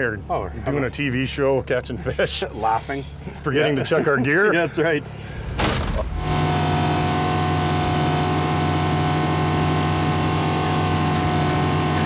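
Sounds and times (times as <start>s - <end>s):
outboard engine running: 5.1s - 12.0s.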